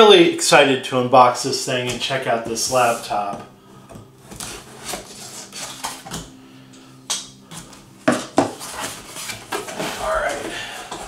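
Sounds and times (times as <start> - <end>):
cardboard being handled: 4.2 - 6.2, 8.1 - 11.0.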